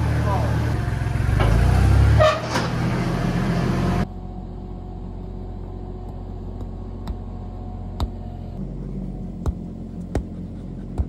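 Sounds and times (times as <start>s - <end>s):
riding lawn mower engine running: 0.0s - 11.0s
soccer ball being kicked: 8.0s - 8.2s, 9.3s - 11.0s.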